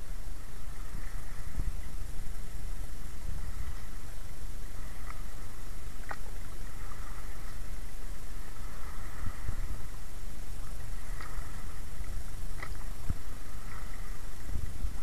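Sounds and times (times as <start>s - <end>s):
lake water sloshing: 0.0s - 15.0s
wind rumble on microphone: 0.0s - 15.0s
faint splashes: 3.1s - 15.0s.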